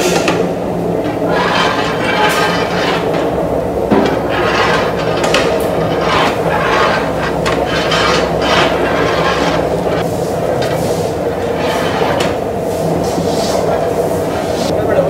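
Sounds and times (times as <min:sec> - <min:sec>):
steady low hum: 0:00.0 - 0:15.0
shovels scraping steel vessel: 0:01.0 - 0:03.3, 0:04.0 - 0:10.0, 0:10.6 - 0:12.4.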